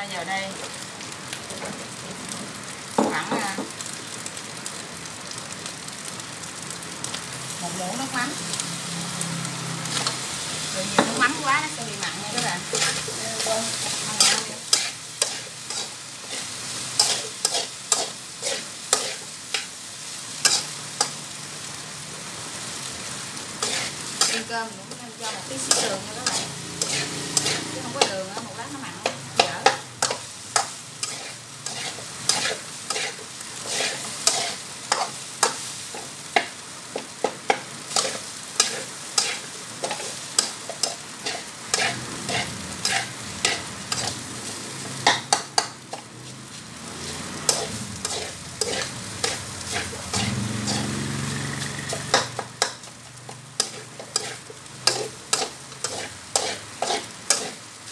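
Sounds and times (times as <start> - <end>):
frying sizzle: 0.0 - 57.9
metal spatula scraping a wok: 9.8 - 19.7, 20.4 - 21.2, 23.5 - 57.8.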